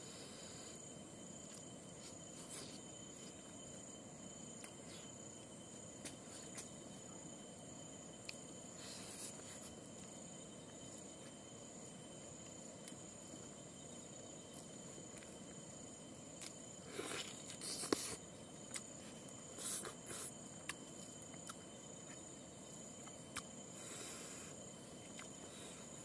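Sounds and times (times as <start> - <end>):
crickets trilling: 0.0 - 26.0
crackling and clicks of eating: 0.1 - 26.0.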